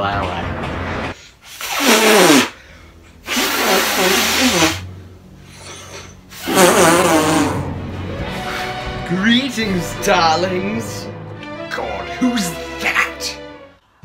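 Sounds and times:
person blowing buzzing blasts: 1.4 - 8.8.

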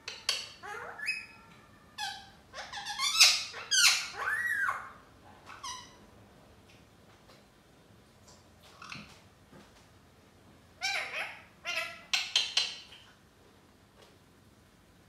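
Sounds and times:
parakeet chattering calls: 2.0 - 6.0, 10.8 - 13.0.

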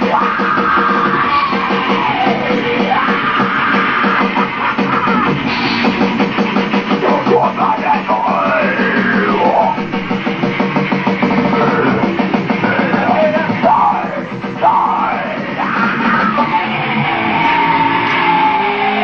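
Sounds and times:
keyboard: 0.0 - 19.0
steady rhythm: 0.0 - 19.0
electric guitar gliding notes: 8.1 - 19.0.

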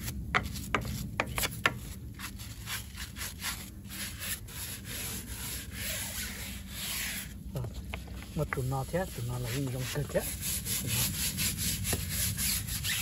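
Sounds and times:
brush scrubbing wet tyre: 0.0 - 13.0.

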